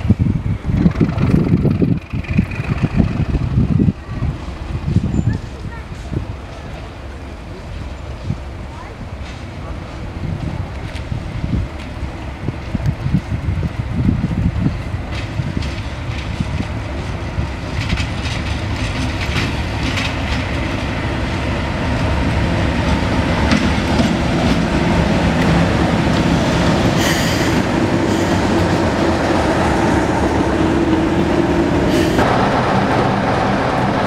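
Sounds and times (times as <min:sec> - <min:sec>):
diesel locomotive engine drone: 0:00.0 - 0:34.0
wheels clicking over rail joints: 0:00.6 - 0:34.0.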